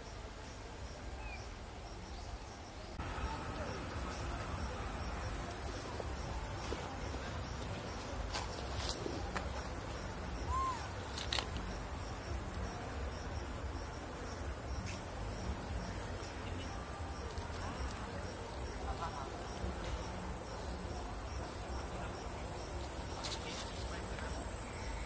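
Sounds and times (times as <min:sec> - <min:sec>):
insect chorus chirping: 0:00.0 - 0:25.0.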